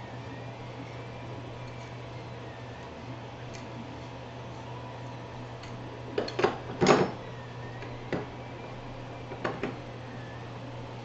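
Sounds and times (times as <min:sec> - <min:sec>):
steady low hum: 0:00.0 - 0:11.0
parts knocking on wooden workbench: 0:09.3 - 0:09.8.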